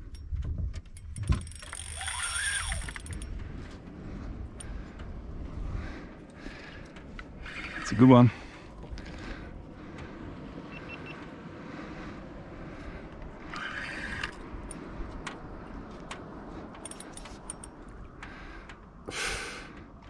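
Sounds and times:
fishing gear clicking: 0.1s - 3.5s, 13.1s - 18.8s
wind and water wash: 0.2s - 20.0s.

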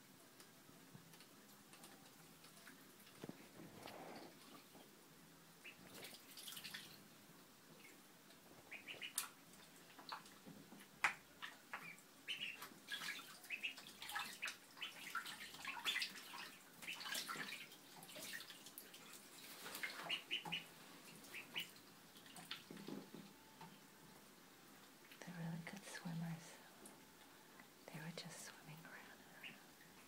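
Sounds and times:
ducklings splashing in water: 1.1s - 3.5s, 5.6s - 7.1s, 8.6s - 23.1s.

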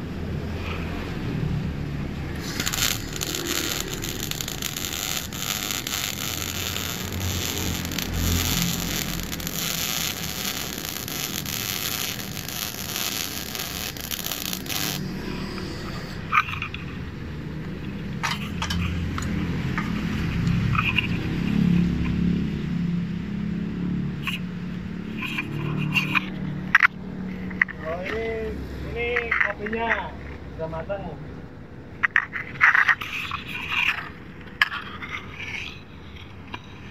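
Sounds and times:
welding arc crackling and hissing: 1.6s - 21.5s
scattered clicks: 2.4s - 15.1s.

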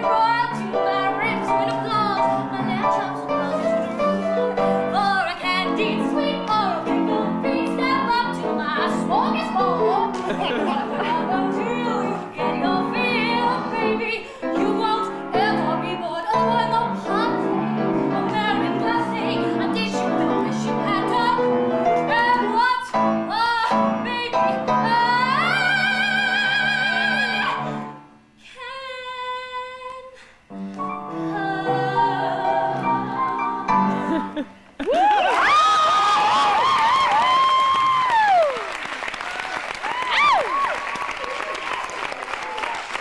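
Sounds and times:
woman singing operatically: 0.0s - 3.6s, 4.8s - 27.7s, 28.4s - 30.2s, 31.1s - 34.3s
piano accompaniment: 0.0s - 28.1s, 30.5s - 34.5s.

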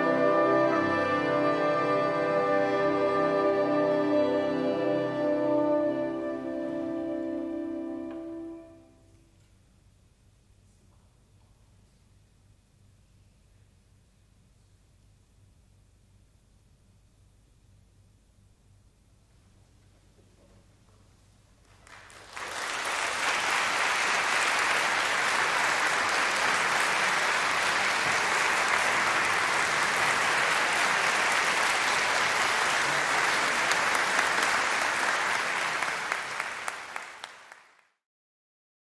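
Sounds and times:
audience applause: 21.7s - 38.0s.

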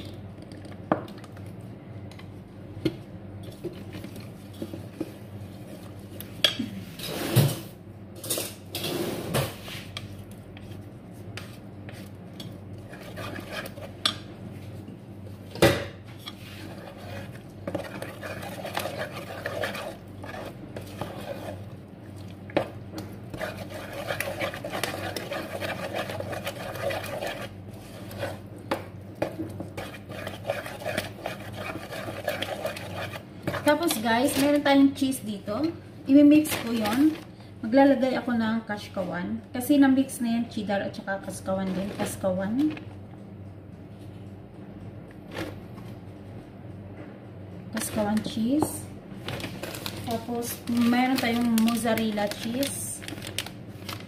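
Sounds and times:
stirring mixture in bowl: 3.4s - 6.5s, 9.6s - 35.1s, 49.3s - 54.0s.

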